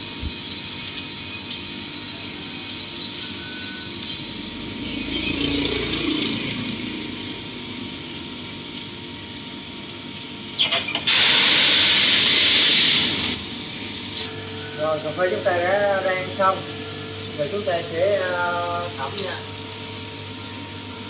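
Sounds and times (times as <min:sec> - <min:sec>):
coffee roaster running: 0:00.0 - 0:21.0
loud steady hiss: 0:11.0 - 0:13.4, 0:14.2 - 0:21.0.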